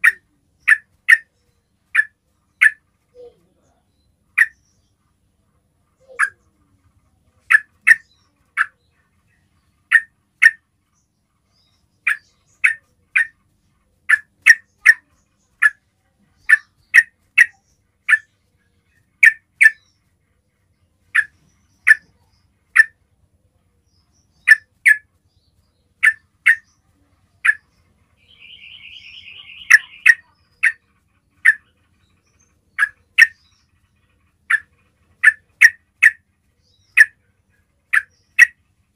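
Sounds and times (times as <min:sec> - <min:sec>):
bird sharp call notes: 0:28.2 - 0:30.8
bird wavering trill: 0:28.2 - 0:30.8.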